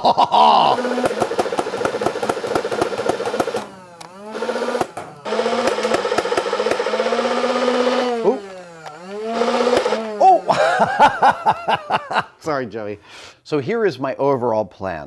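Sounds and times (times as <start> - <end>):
flywheels whining: 0.7 - 12.0
rapid clicks of balls feeding: 0.8 - 10.1.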